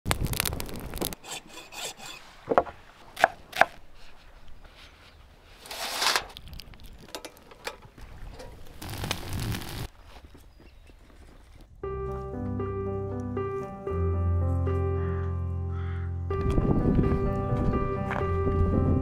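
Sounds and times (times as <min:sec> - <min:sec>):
wood scraping: 0:00.2 - 0:11.7.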